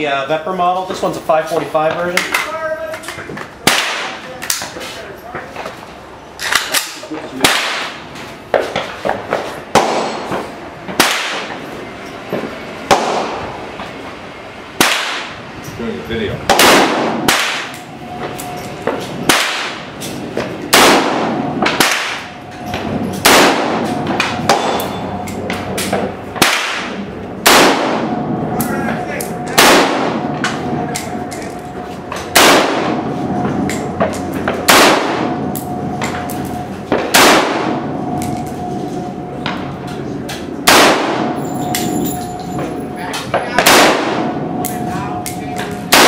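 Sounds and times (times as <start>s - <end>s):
rifle shots echoing: 3.6s - 4.2s, 7.4s - 8.0s, 9.7s - 10.3s, 11.0s - 11.6s, 12.9s - 13.4s, 14.8s - 15.4s, 16.5s - 17.8s, 19.3s - 19.9s, 20.7s - 22.4s, 23.2s - 25.0s, 25.8s - 28.4s, 29.3s - 31.2s, 32.3s - 33.1s, 34.6s - 35.5s, 36.9s - 38.2s, 40.6s - 42.0s, 43.5s - 44.6s.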